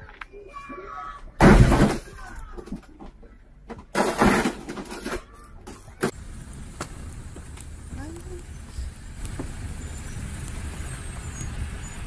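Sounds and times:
car crunching into cars: 0:03.8 - 0:06.2.

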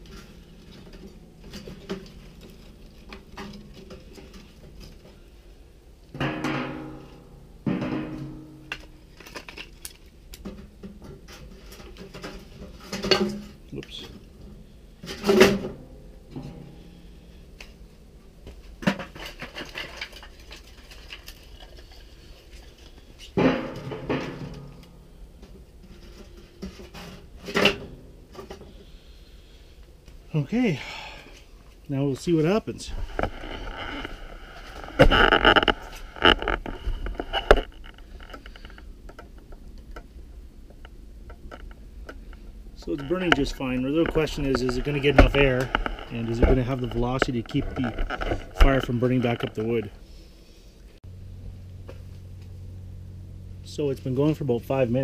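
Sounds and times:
wood clunking on metal barrel: 0:00.0 - 0:05.3, 0:06.1 - 0:09.8, 0:10.4 - 0:17.0, 0:18.4 - 0:22.2, 0:22.8 - 0:28.9
wooden sticks clattering: 0:06.2 - 0:14.2, 0:18.5 - 0:28.9.

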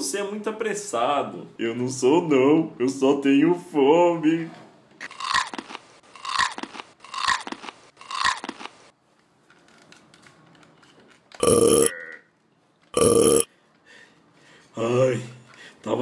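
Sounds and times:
cartoon chomping: 0:05.1 - 0:08.7, 0:11.4 - 0:12.0, 0:13.0 - 0:13.5
cartoon burps: 0:11.4 - 0:12.2, 0:13.0 - 0:13.5.

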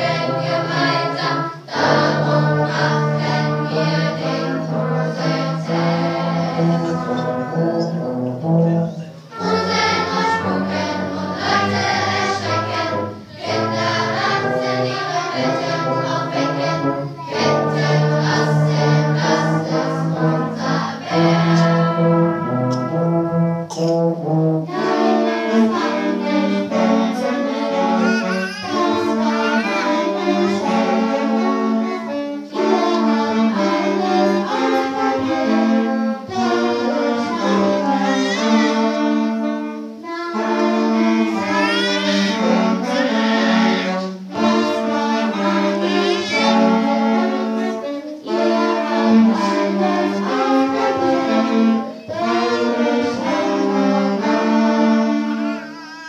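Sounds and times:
loud brass-led music: 0:00.0 - 0:28.0.

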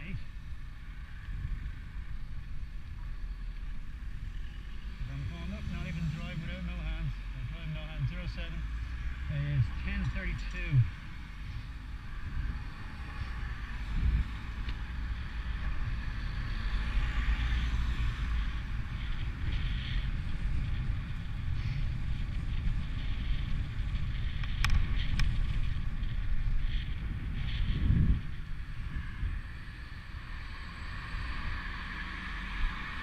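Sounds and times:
wind rumbling on microphone: 0:00.0 - 0:33.0
cars passing on wet road: 0:04.7 - 0:21.4, 0:29.0 - 0:33.0.

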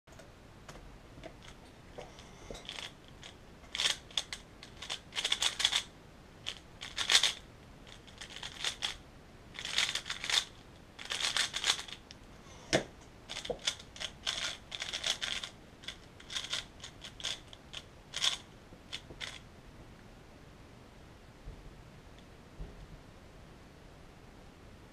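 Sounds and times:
plastic cube layers clicking: 0:02.6 - 0:05.9, 0:06.5 - 0:09.0, 0:09.6 - 0:12.0, 0:13.3 - 0:19.4.

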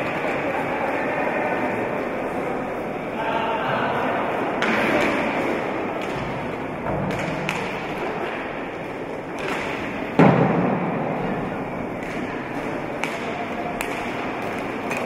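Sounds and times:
crowd noise: 0:00.0 - 0:15.0
skate wheels on the floor: 0:00.0 - 0:15.0.

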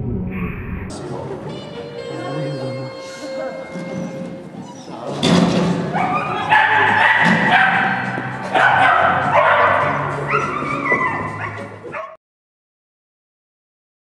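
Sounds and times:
music with held notes: 0:00.9 - 0:11.9
dog barking and yipping: 0:05.8 - 0:12.2.

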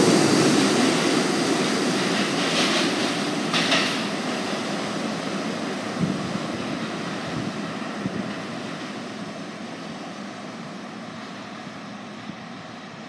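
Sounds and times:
subway train rumbling in tunnel: 0:00.0 - 0:13.0.

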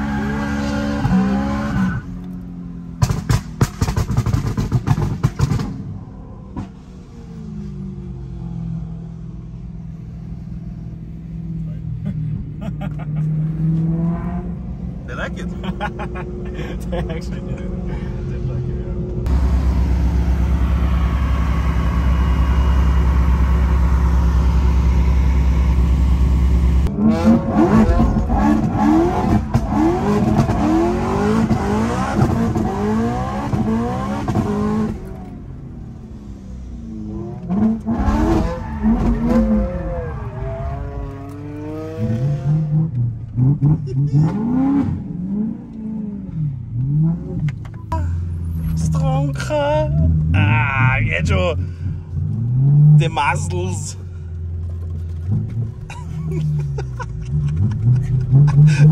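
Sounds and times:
car engine revving hard: 0:26.6 - 0:35.3.

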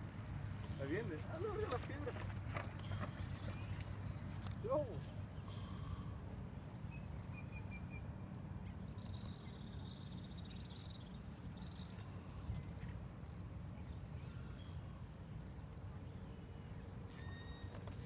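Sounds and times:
faint high chirps: 0:06.9 - 0:08.1.

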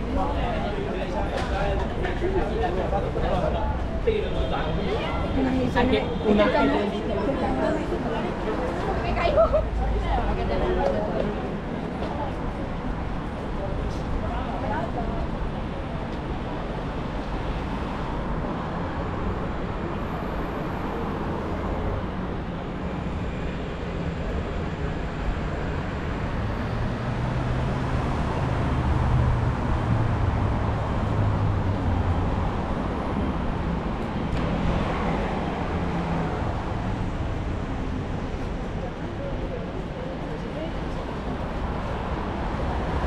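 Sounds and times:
cars running by: 0:00.0 - 0:43.0.

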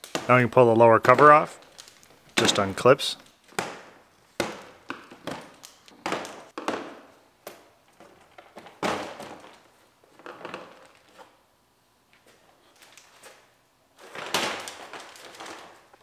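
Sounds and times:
plastic parts knocking together: 0:03.5 - 0:11.1.

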